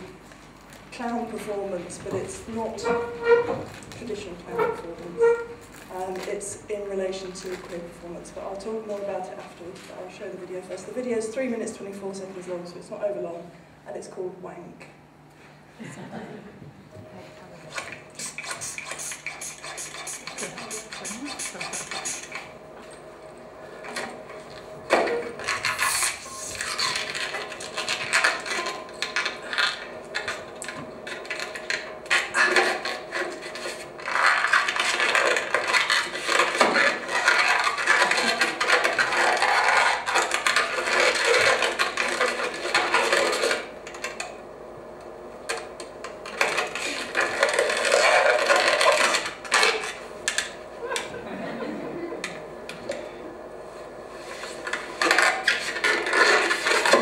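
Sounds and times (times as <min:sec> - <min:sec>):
rubber balloon squeaking: 0:02.6 - 0:03.8, 0:04.5 - 0:05.9, 0:18.2 - 0:22.3, 0:25.0 - 0:28.6.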